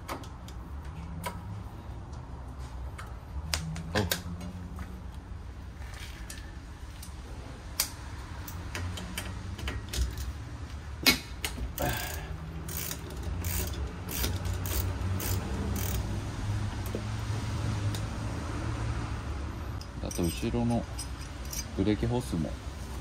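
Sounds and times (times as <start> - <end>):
ratchet wrench clicking: 11.4 - 16.1, 19.8 - 21.8.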